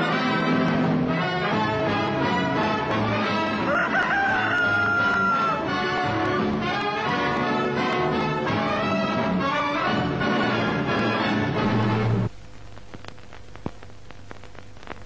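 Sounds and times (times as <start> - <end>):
brass-led orchestral music: 0.0 - 3.7, 5.6 - 12.3.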